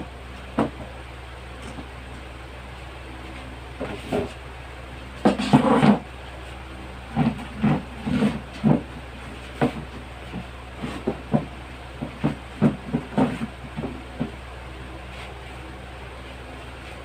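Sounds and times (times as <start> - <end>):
steady hum: 0.0 - 17.0
rattan chair knocks and creaks: 0.5 - 0.9, 7.1 - 14.4.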